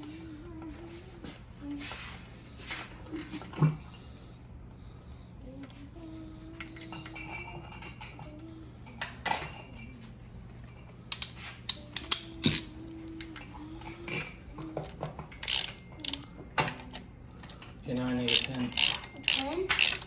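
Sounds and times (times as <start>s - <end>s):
hand ratchet clicking: 11.1s - 12.7s, 15.4s - 16.2s, 17.9s - 20.0s.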